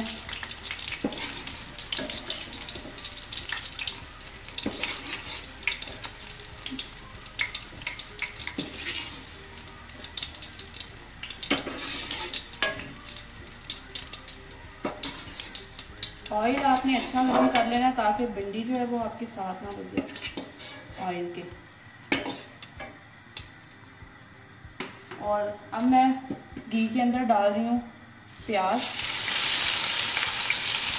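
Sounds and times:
frying oil sizzling: 0.0 - 23.6, 28.3 - 30.9
metal spoon scraping pan: 0.9 - 2.7, 11.5 - 12.8, 14.9 - 15.6, 16.5 - 17.8, 20.1 - 21.0.

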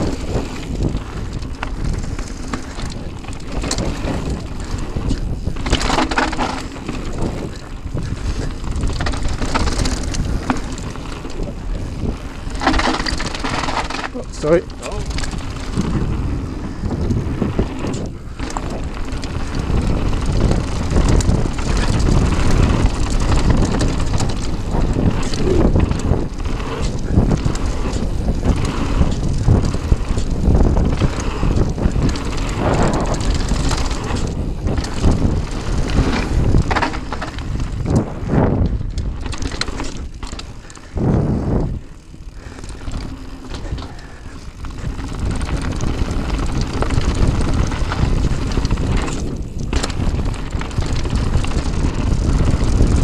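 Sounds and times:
bike knocking and rattling: 0.0 - 53.0
wind buffeting microphone: 0.0 - 53.0.

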